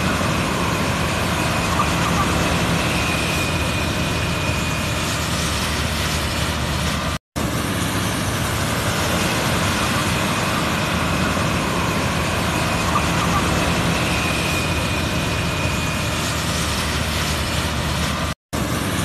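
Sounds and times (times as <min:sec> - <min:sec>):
harvester droning: 0:00.0 - 0:19.0.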